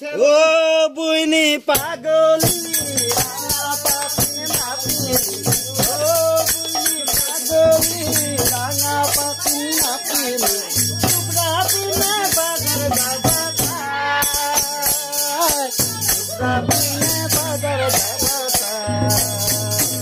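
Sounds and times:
voices singing: 0.0s - 20.0s
barrel drum: 1.8s - 20.0s
high jingling percussion: 1.8s - 20.0s
hand clapping: 2.5s - 13.6s.

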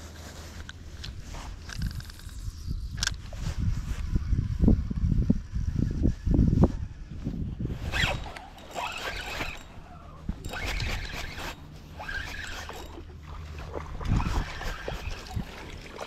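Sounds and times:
fishing reel whirring: 1.6s - 3.2s, 7.8s - 15.9s.

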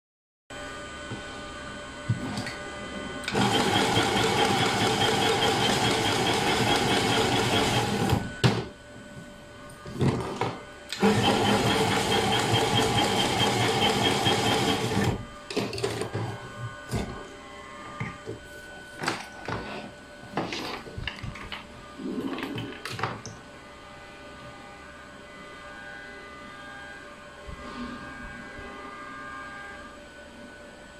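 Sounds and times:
tape wrapping machine running: 3.2s - 8.6s, 10.1s - 16.3s.

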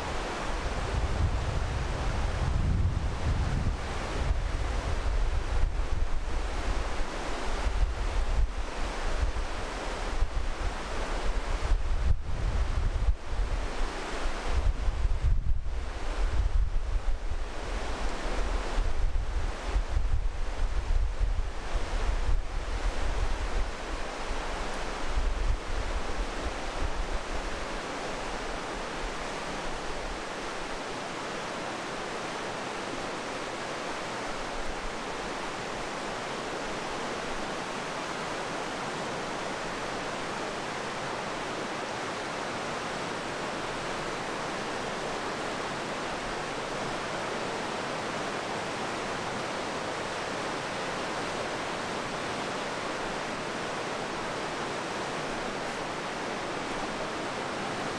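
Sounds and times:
wind buffeting microphone: 0.0s - 9.5s, 10.1s - 24.0s
river rushing through rocks: 0.0s - 57.9s.

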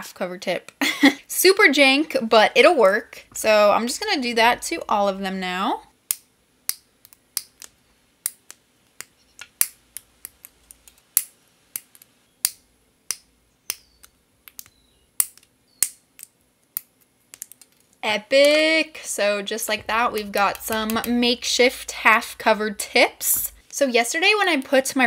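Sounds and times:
nippers snipping plastic: 19.8s - 21.2s.

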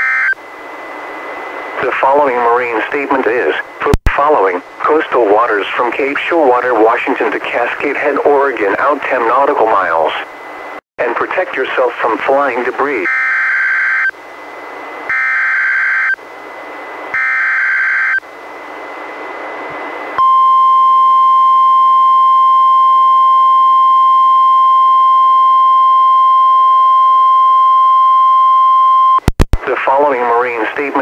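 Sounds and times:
radio hiss: 1.4s - 10.3s, 11.0s - 13.1s, 29.6s - 31.0s.

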